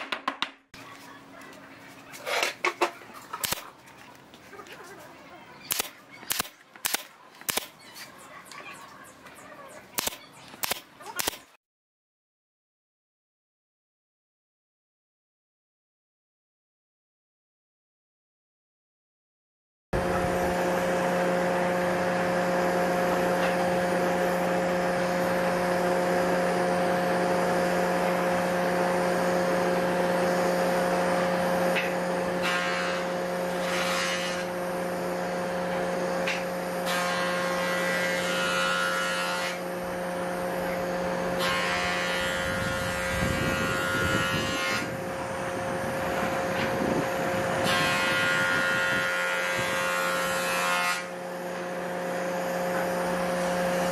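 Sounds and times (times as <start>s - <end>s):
droning hum: 20.0s - 53.9s.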